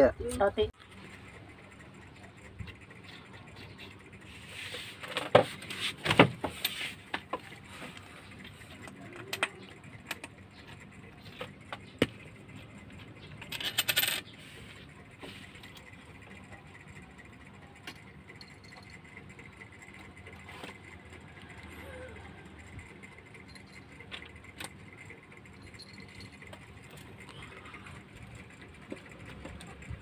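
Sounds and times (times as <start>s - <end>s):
coin clattering rattle: 13.3s - 14.8s
coin clinking on glass: 13.5s - 14.3s.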